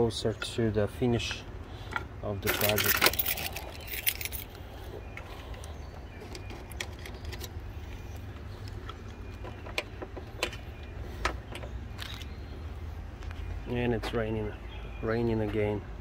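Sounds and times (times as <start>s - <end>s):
keys clinking: 2.5s - 4.6s.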